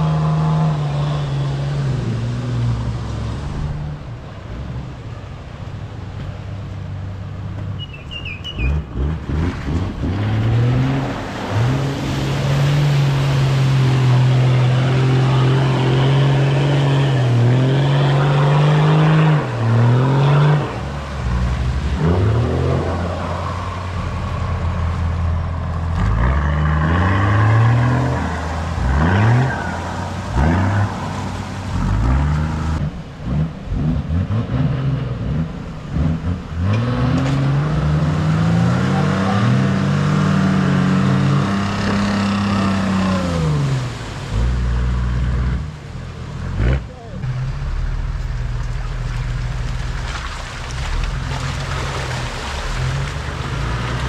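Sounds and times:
water and mud splashing: 0.0 - 54.0.

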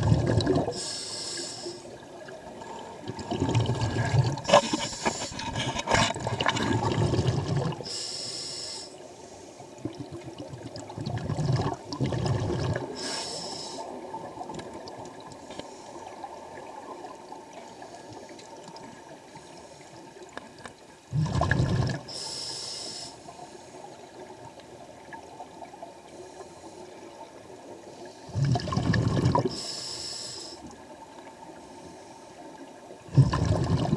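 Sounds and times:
exhaled air bubbling underwater: 0.0 - 33.9
regulator inhalation hiss: 0.7 - 2.0, 7.9 - 9.6, 13.0 - 13.9, 22.1 - 23.8, 29.5 - 30.7.

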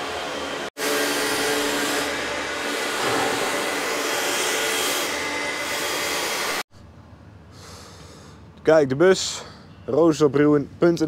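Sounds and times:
floor grinding machine whirring: 0.0 - 6.6.

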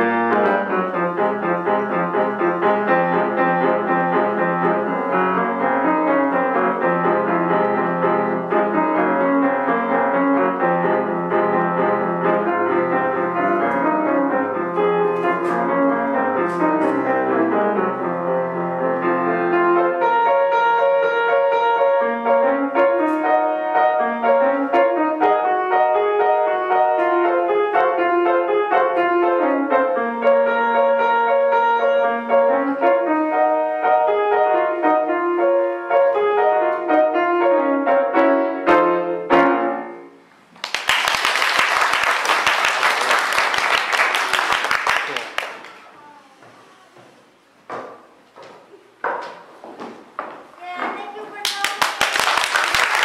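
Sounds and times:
solo piano piece: 0.0 - 40.5
audience applauding: 40.6 - 46.0, 51.4 - 53.0.

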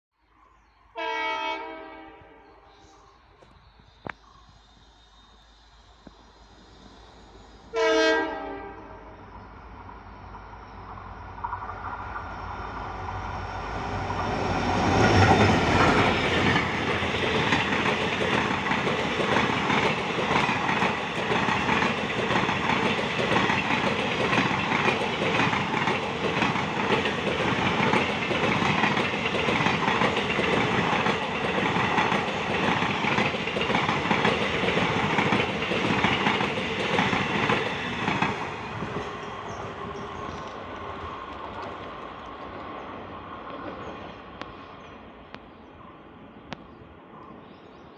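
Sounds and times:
train passing at speed: 4.7 - 47.9
wheels clacking over rail joints: 14.8 - 39.6.

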